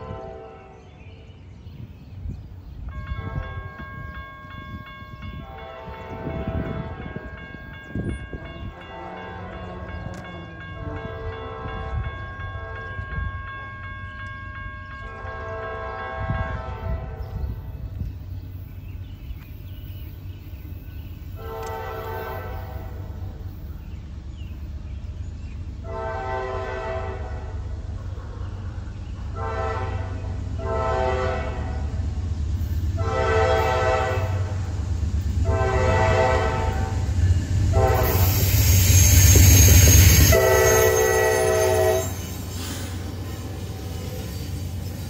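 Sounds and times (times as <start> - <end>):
train horn blasts: 0.0 - 1.1, 2.9 - 13.4, 15.0 - 17.7, 21.3 - 23.4, 25.8 - 27.8, 29.3 - 32.2, 32.9 - 42.4
train wheel noise: 1.8 - 45.0
diesel locomotive rumble: 14.2 - 45.0.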